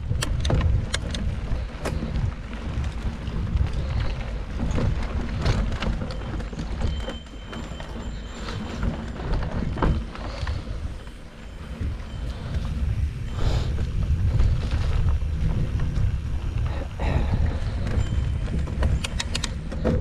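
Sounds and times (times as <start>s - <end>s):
wind rushing over microphone: 0.0s - 7.0s, 8.4s - 20.0s
bike clicks and rattles: 0.0s - 20.0s
tyres rolling on dirt and leaves: 0.0s - 20.0s.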